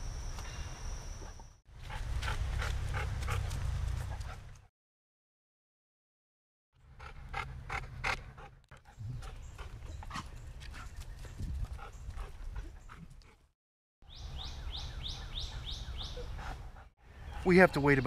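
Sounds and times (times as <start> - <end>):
dog panting: 1.8 - 4.7, 6.9 - 13.5, 16.2 - 17.6.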